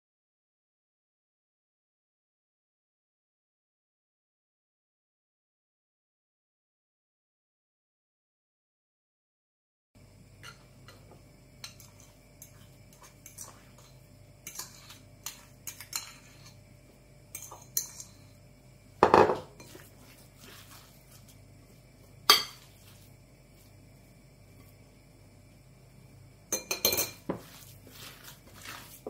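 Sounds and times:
fork scraping a ceramic plate: 0:11.6 - 0:16.6, 0:17.3 - 0:18.4, 0:19.6 - 0:21.3, 0:26.7 - 0:29.0.

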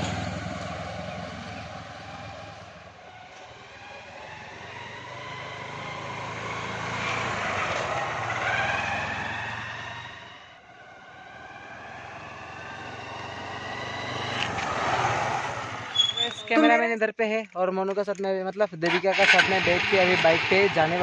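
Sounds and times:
motorcycle engine passing: 0:00.0 - 0:16.2.

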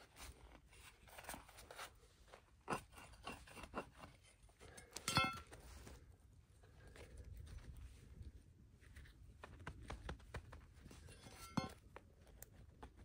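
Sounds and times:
hand tools knocking and scraping dirt: 0:02.6 - 0:05.6, 0:11.0 - 0:12.0
digging hammer clanking on ground: 0:05.0 - 0:05.5, 0:11.1 - 0:11.8.

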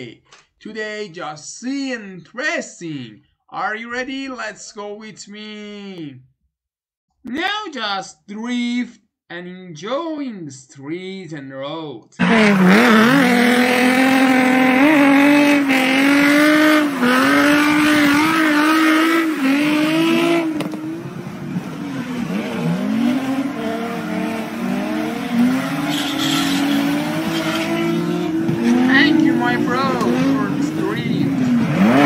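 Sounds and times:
car engines revving high: 0:12.2 - 0:32.0
tyre squeal: 0:25.2 - 0:29.0.

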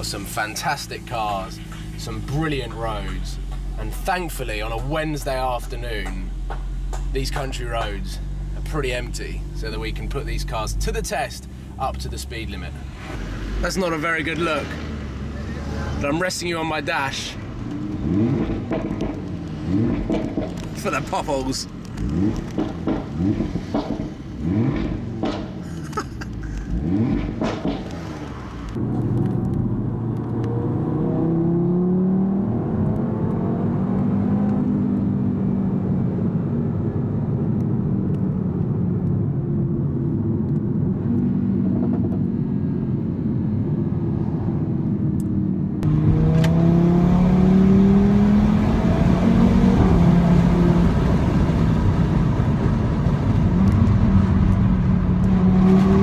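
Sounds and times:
sharp exhaust pops: 0:05.8 - 0:08.2, 0:17.6 - 0:29.6
car engine accelerating through gears: 0:17.5 - 0:56.0.

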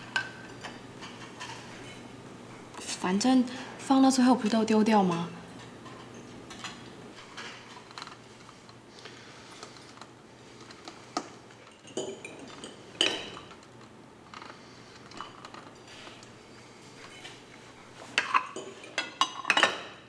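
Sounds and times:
cutlery and plates clinking: 0:11.5 - 0:13.7, 0:18.0 - 0:20.0.

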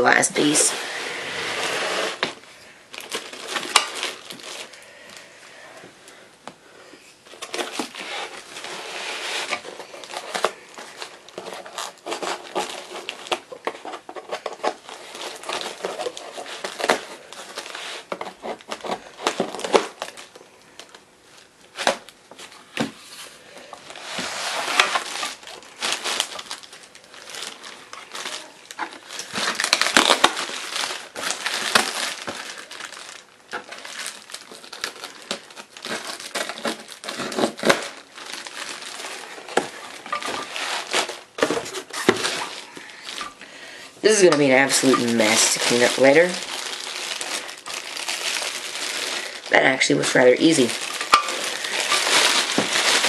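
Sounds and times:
plastic wrapping crinkling: 0:00.0 - 0:06.2, 0:06.9 - 0:53.0
cardboard being torn: 0:00.4 - 0:04.8, 0:07.3 - 0:20.3, 0:23.9 - 0:43.2, 0:44.2 - 0:53.0.

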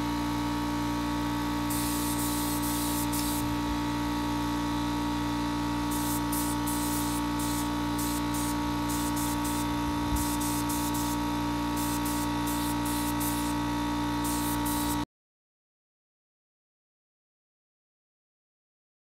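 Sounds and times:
steady hum: 0:00.0 - 0:15.0
spray gun hissing: 0:01.7 - 0:03.6, 0:05.9 - 0:13.6, 0:14.2 - 0:15.0.

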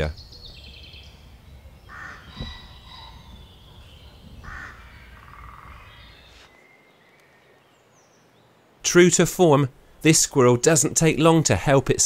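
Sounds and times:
low background rumble: 0:00.0 - 0:06.4
birds calling: 0:00.0 - 0:11.7
harsh caw-like calls: 0:01.8 - 0:06.2.

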